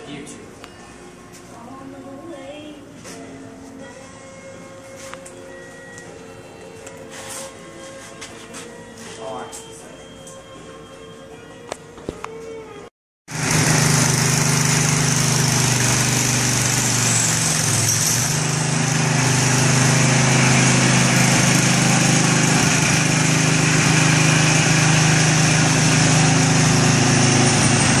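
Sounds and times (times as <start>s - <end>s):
tiller engine running: 13.3s - 28.0s.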